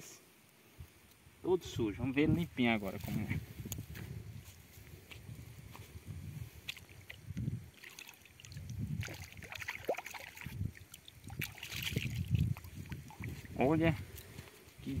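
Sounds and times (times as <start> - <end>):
water splashing and sloshing: 6.6 - 13.6.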